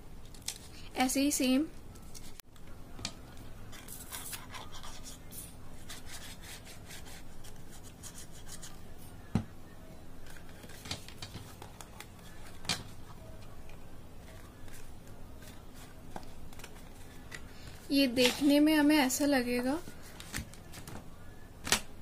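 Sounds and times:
hands rubbing craft paper: 3.7 - 8.9.

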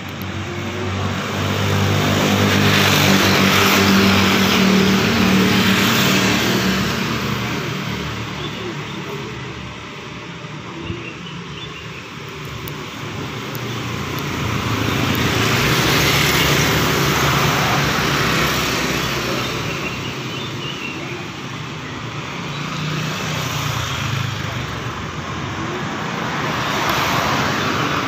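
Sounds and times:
vehicle passing by: 0.7 - 8.4, 13.8 - 20.2.

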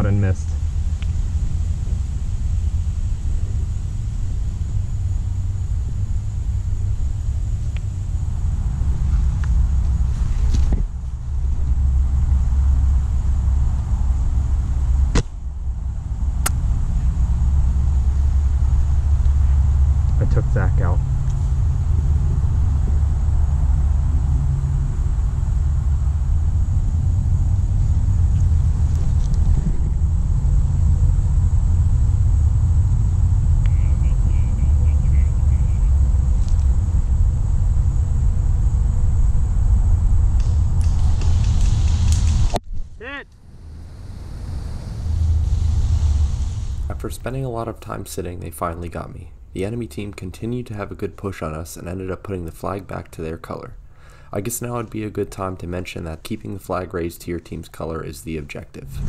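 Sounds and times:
faint high whine: 0.0 - 59.0
steady low rumble: 0.0 - 59.0
airsoft rifle shot crack: 15.1 - 15.4.

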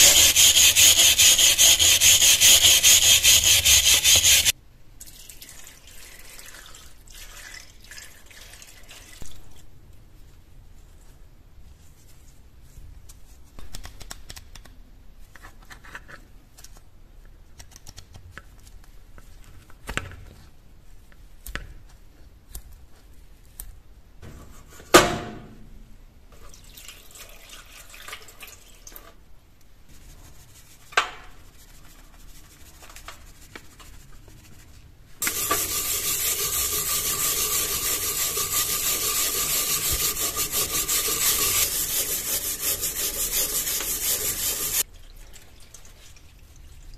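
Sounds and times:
brush scrubbing knife: 0.0 - 4.5, 35.2 - 44.8
water pouring into steel tray: 5.1 - 9.2, 26.5 - 29.0, 35.2 - 42.2.

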